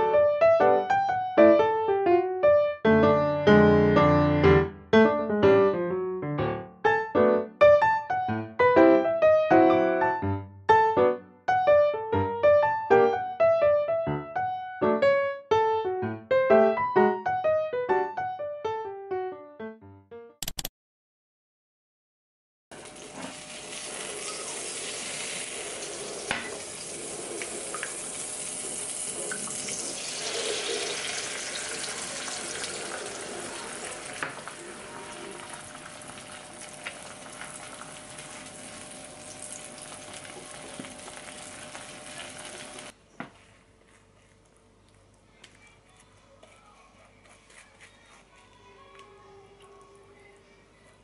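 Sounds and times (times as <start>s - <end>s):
eggs sizzling in a frying pan: 22.8s - 43.0s.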